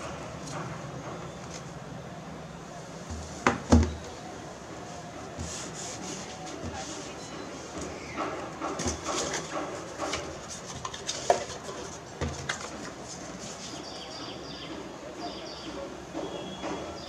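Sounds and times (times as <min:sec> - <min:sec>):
cardboard box clicking and rustling: 0:08.7 - 0:13.0
paper rustling: 0:08.7 - 0:14.0.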